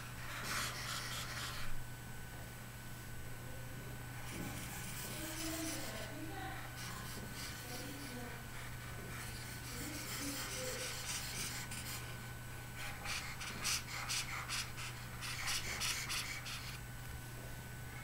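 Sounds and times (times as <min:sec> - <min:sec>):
low electrical hum: 0:00.0 - 0:18.0
stylus scratching on tablet: 0:00.2 - 0:01.7, 0:04.2 - 0:12.2, 0:12.8 - 0:16.8.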